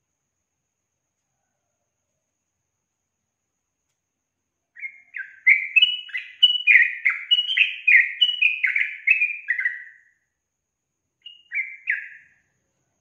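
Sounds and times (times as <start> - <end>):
bird chattering song: 4.8 - 10.0, 11.2 - 12.4.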